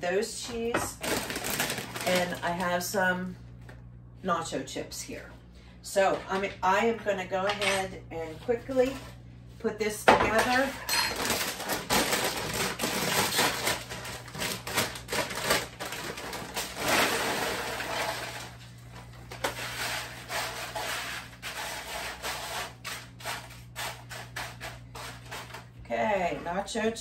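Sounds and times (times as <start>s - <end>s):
plastic chip bag crinkling: 0.8s - 3.0s, 10.6s - 25.7s
chips rustling by hand: 1.0s - 2.9s, 11.1s - 25.8s.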